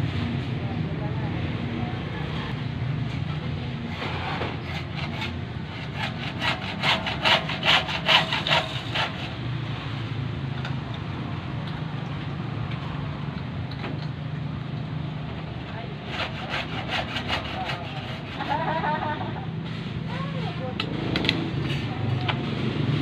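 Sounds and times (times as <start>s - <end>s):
hacksaw cutting plastic pipe: 3.9s - 9.4s, 16.1s - 18.7s.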